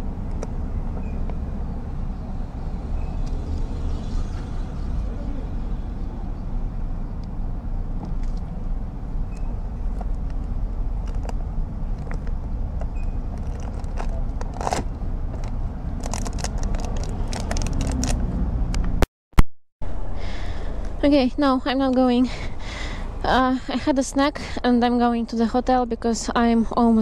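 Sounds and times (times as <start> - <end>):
low rumble of motor vehicles: 0.0 - 19.0, 19.8 - 27.0
small clicks and rattles: 12.0 - 18.2.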